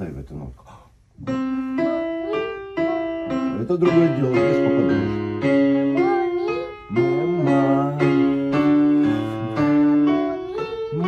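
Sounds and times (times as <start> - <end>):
piano playing held notes: 1.2 - 11.0
girl singing: 1.7 - 3.4, 5.4 - 11.0.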